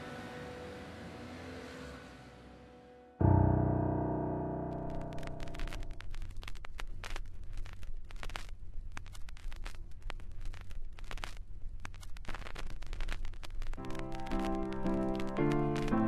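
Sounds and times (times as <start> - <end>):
irregular crackling and clicking: 4.7 - 16.0.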